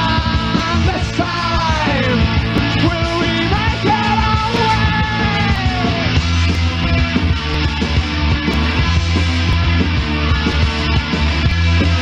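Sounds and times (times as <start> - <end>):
punk rock band playing: 0.0 - 12.0.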